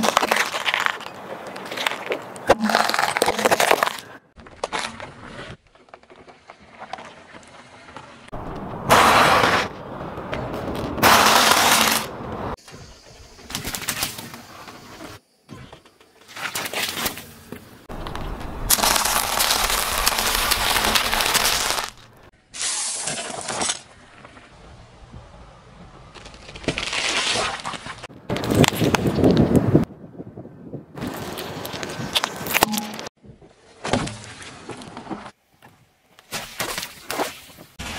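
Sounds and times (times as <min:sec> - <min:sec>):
car tyre crushing brittle things: 0:00.0 - 0:12.6, 0:16.0 - 0:24.5, 0:26.0 - 0:29.4, 0:31.0 - 0:33.1.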